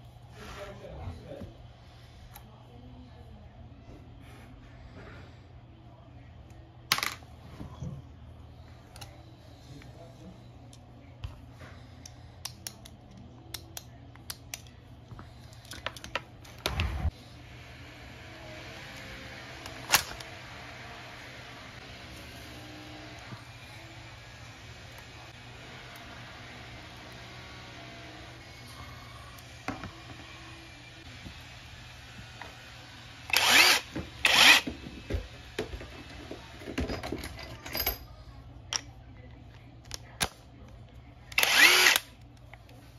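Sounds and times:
impact wrench motor whining: 33.3s - 34.8s, 41.4s - 42.1s
tool handling clicks and knocks: 33.9s - 38.0s.

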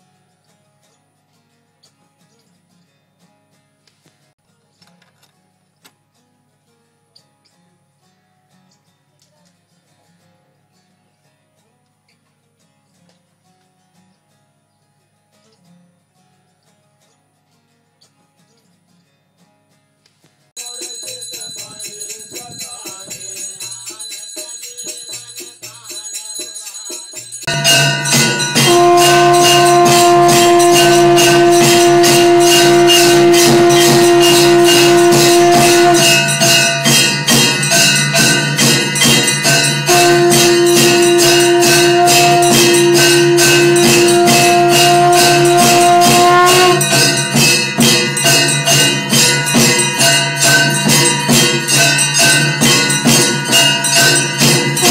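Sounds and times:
bells and percussion clanging: 20.6s - 54.9s
conch shell blasts: 27.5s - 54.9s.

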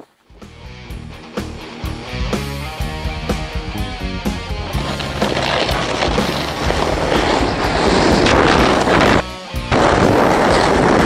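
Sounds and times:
sled scraping over snow: 3.8s - 9.2s, 9.8s - 11.0s
wind buffeting microphone: 4.8s - 11.0s.

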